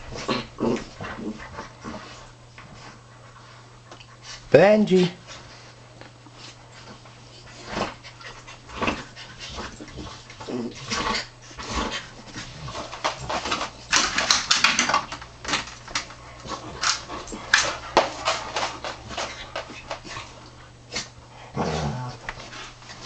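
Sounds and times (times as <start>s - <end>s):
dogs play fighting: 0.0s - 4.5s, 5.1s - 23.0s.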